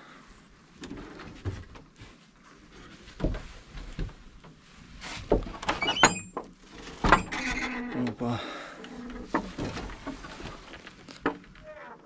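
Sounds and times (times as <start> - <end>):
rustling: 0.0 - 12.0
creaky door squeak: 5.6 - 6.4, 7.0 - 8.1, 11.6 - 12.0.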